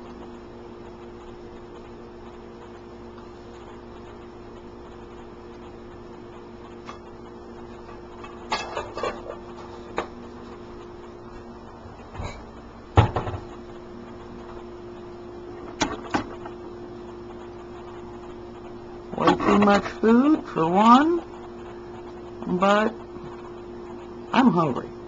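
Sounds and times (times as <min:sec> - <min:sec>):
fluorescent light ballast humming: 0:00.0 - 0:25.0.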